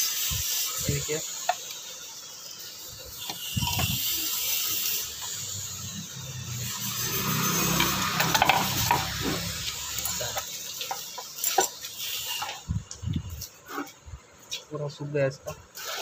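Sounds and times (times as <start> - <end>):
metal scraping: 3.2 - 12.7
ratchet clicks: 3.2 - 13.0.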